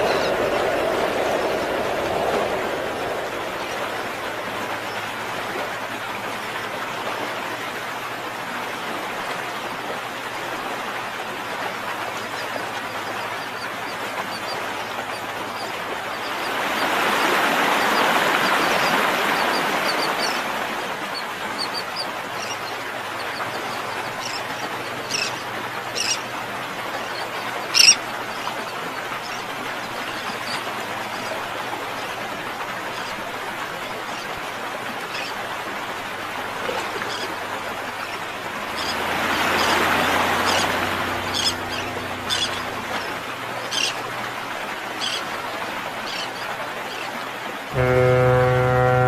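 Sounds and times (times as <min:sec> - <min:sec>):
birds chirping: 0:00.0 - 0:05.2, 0:12.2 - 0:35.6, 0:36.2 - 0:47.2
steady rushing noise: 0:00.0 - 0:08.8.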